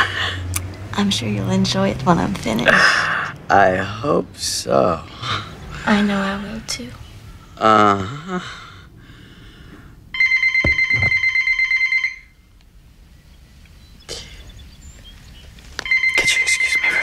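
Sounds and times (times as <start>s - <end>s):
telephone bell ringing: 10.2s - 12.3s, 15.9s - 17.0s.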